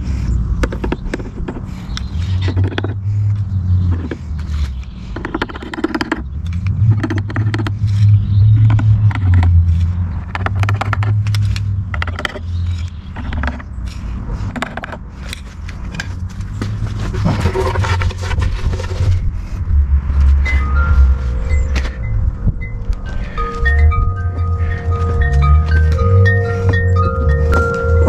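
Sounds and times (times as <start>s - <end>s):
clicks and scrapes of wire and can: 4.0s - 19.3s
low rumble: 16.0s - 28.0s.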